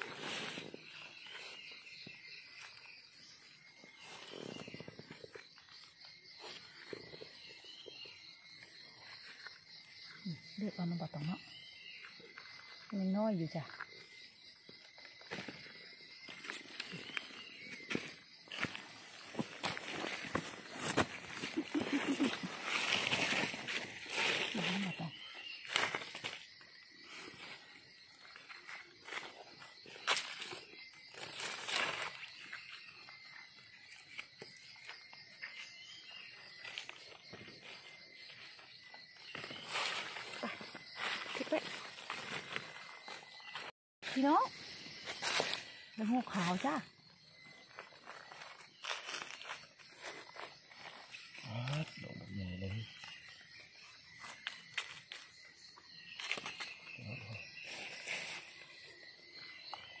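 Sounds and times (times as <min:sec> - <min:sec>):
forest insects droning: 0:00.0 - 1:00.0
rustle of leaf litter: 0:21.6 - 0:26.3, 0:57.6 - 0:58.7.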